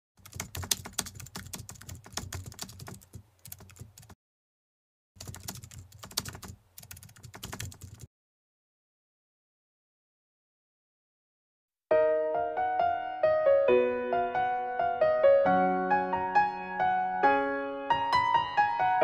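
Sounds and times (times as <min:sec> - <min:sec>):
computer keyboard typing: 0:00.2 - 0:04.2, 0:05.2 - 0:08.1.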